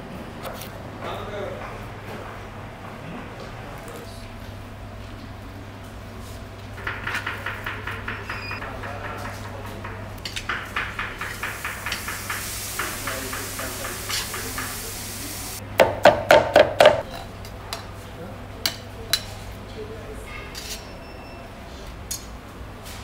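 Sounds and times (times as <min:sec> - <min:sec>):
knife chopping on wooden board: 0:15.8 - 0:17.0.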